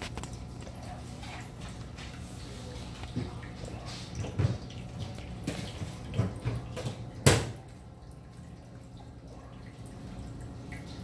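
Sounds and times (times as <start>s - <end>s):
low steady hum: 0.0s - 11.0s
fountain water trickling: 7.0s - 11.0s.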